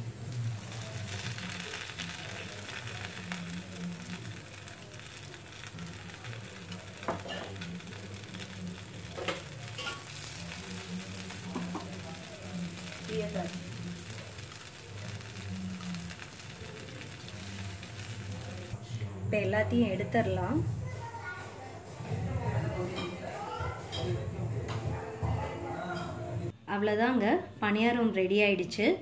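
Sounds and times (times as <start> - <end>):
batter sizzling in ghee: 0.0 - 18.8.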